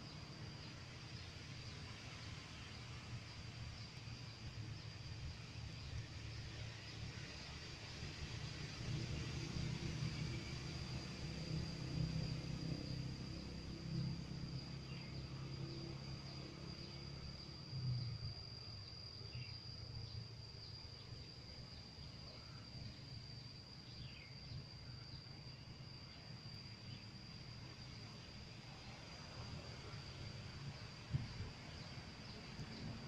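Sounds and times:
road traffic rumble: 0.0s - 18.5s
insects trilling: 0.0s - 33.0s.

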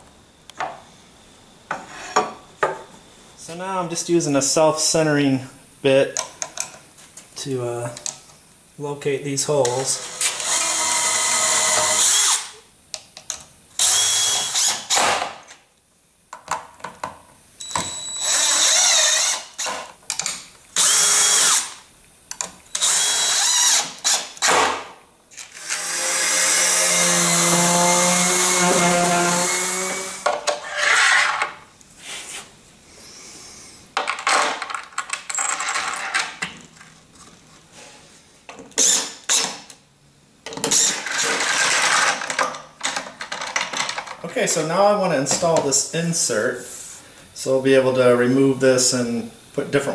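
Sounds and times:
cordless drill drilling: 10.0s - 12.5s, 13.8s - 15.2s, 17.6s - 19.8s, 20.8s - 21.8s, 22.7s - 24.6s, 25.5s - 30.2s, 38.8s - 39.5s.

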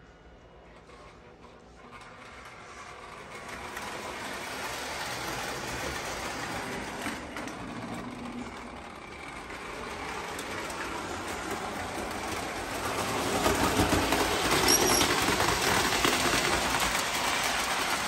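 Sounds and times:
model train running on track: 0.0s - 18.0s
high squeak: 14.6s - 15.3s.

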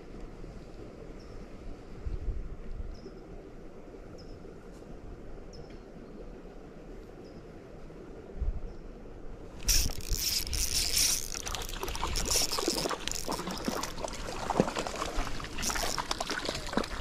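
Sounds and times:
fishing reel clicking: 9.6s - 14.0s, 15.6s - 16.1s
fish splashing at the surface: 9.6s - 17.0s.

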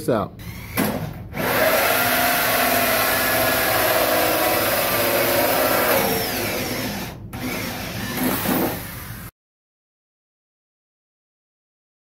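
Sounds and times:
power drill hole saw cutting plastic pipe: 0.4s - 9.3s.

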